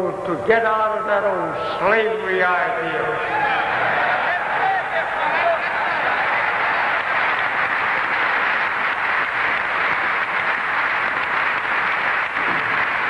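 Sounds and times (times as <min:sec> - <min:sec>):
large audience applauding: 0:03.3 - 0:13.0.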